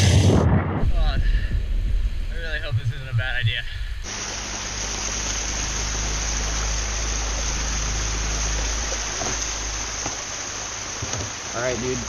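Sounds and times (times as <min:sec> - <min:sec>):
low rumble: 0:00.0 - 0:12.0
water rushing down a ditch: 0:04.1 - 0:12.0.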